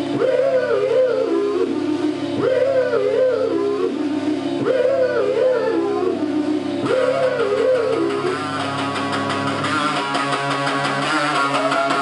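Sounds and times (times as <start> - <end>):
wavering held guitar note: 6.8 - 12.0
live rock band playing: 8.1 - 12.0.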